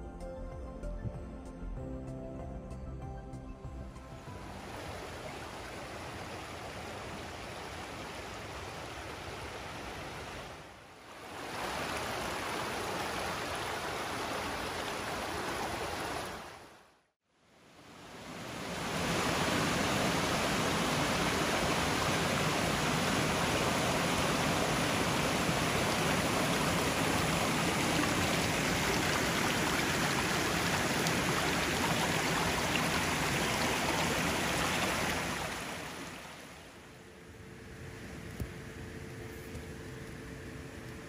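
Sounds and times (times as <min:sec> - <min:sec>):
rushing water: 0:04.2 - 0:17.0, 0:17.7 - 0:36.9.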